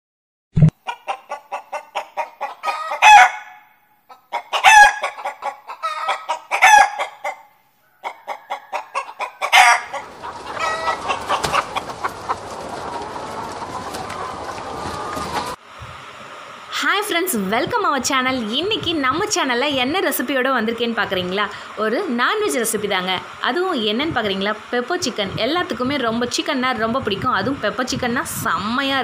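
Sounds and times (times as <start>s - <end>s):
hen clucking and cackling: 0.8s - 15.6s
steady hissing noise: 7.4s - 29.0s.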